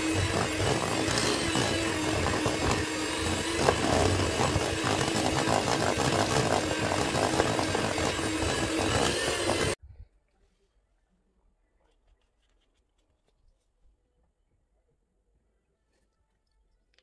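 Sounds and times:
electric hand mixer whirring: 0.0s - 9.8s.

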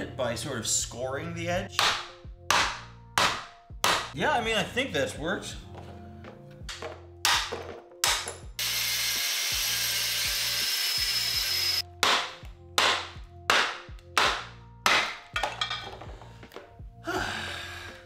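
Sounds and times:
background music: 0.0s - 18.0s
power tool running: 8.6s - 11.8s
hammer striking metal: 12.0s - 16.0s.

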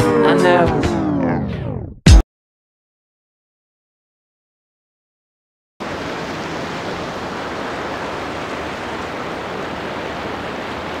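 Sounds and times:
surf washing onto beach: 5.8s - 11.0s.

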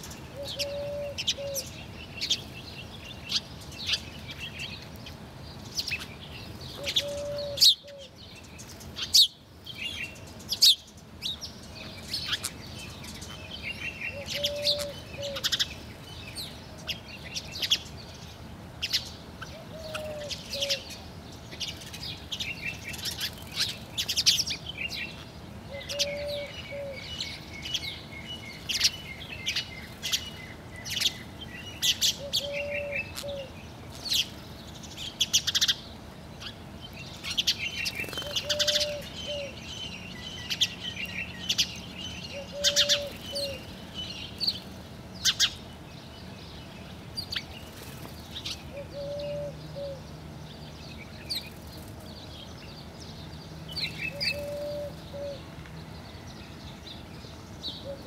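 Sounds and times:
sparrows chirping: 0.0s - 58.0s
low cooing: 0.4s - 1.7s, 6.8s - 8.2s, 14.1s - 15.6s, 25.7s - 27.1s, 32.2s - 33.5s, 42.4s - 43.6s, 48.7s - 50.1s, 54.1s - 55.4s.

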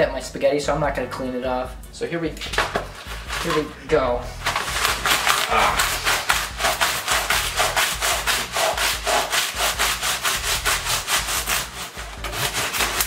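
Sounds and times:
hand saw cutting cardboard: 4.5s - 13.0s.

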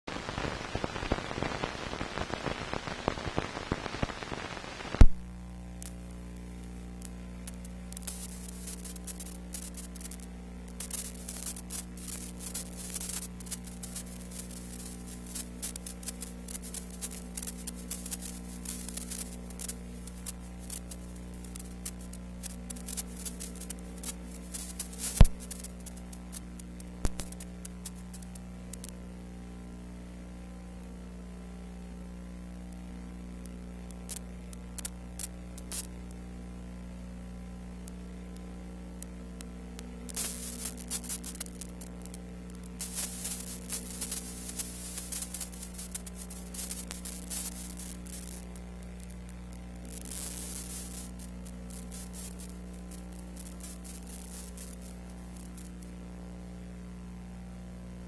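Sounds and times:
rough hiss with crackle: 0.1s - 57.3s
low electrical hum: 3.1s - 58.0s
sharp pops: 4.9s - 6.0s, 7.0s - 26.4s, 27.0s - 28.2s, 40.1s - 48.3s
sharp loud click: 27.1s - 27.5s.

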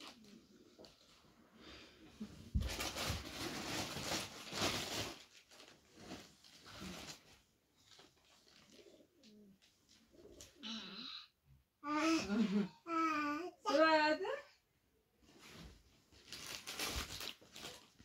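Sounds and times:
plastic bags and cloth rustling: 0.0s - 10.6s, 15.2s - 18.0s.

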